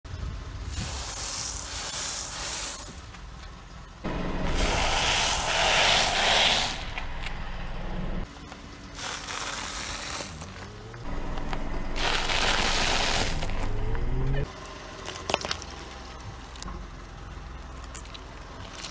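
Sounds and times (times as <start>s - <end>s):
low car rumble: 3.3s - 8.9s, 10.2s - 18.9s
tyre crushing brittle wafers: 8.4s - 10.8s, 15.0s - 15.7s.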